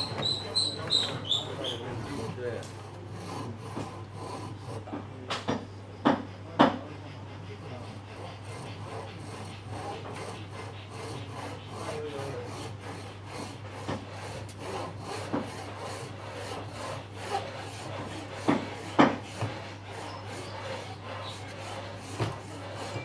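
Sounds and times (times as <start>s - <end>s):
hand saw cutting wood: 0.0s - 23.0s
sharp knocks: 4.9s - 6.8s, 13.7s - 19.8s, 20.6s - 23.0s.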